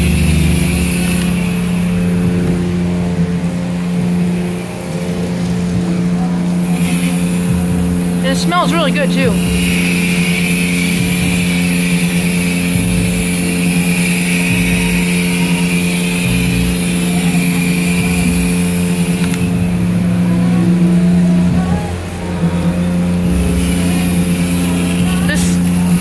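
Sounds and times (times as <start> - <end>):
spray gun hissing: 0.0 - 2.2, 6.6 - 19.8
pump humming: 0.0 - 26.0.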